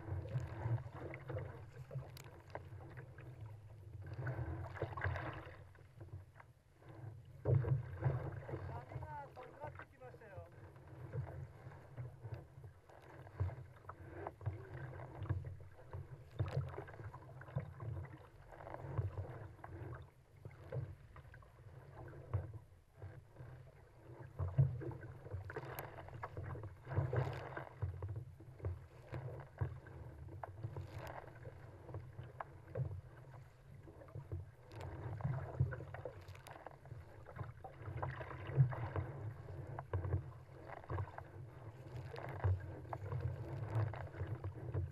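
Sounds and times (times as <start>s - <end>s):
water splashing against kayak hull: 0.0s - 44.9s.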